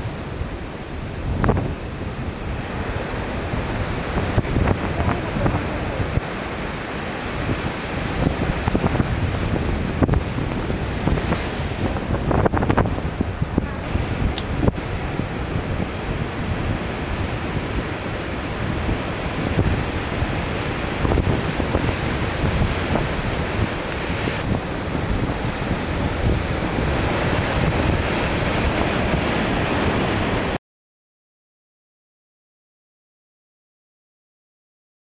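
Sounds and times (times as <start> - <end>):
sea surf breaking: 0.0 - 30.6
wind rumbling on microphone: 0.0 - 30.6.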